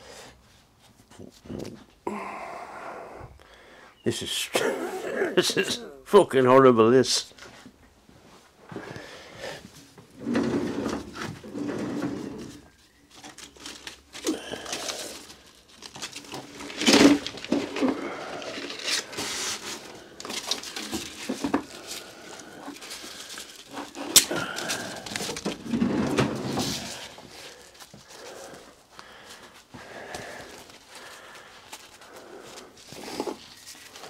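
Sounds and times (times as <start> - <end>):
tools and metal parts handled: 10.3 - 28.4.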